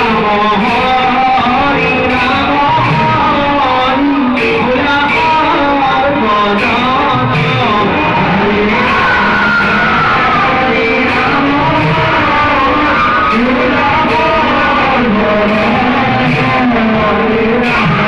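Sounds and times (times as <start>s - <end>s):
drums and cymbals: 0.0s - 18.0s
person singing: 0.0s - 18.0s.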